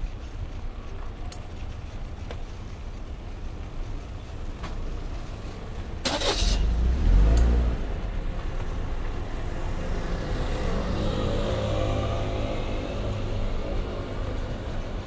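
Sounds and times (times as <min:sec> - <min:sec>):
low traffic hum: 0:00.0 - 0:15.0
car passing: 0:06.0 - 0:15.0.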